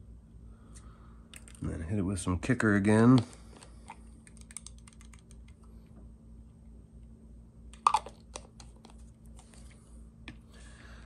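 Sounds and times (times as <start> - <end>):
faint steady hum: 0.0 - 11.0
small items clicking and tapping: 3.1 - 5.6.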